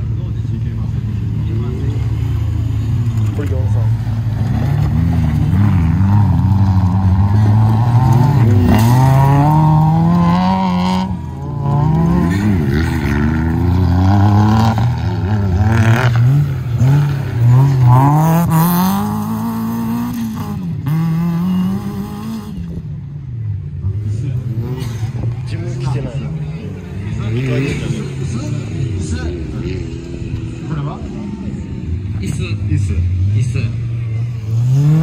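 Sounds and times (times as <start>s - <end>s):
car engine revving hard: 4.4s - 22.6s, 34.4s - 35.0s.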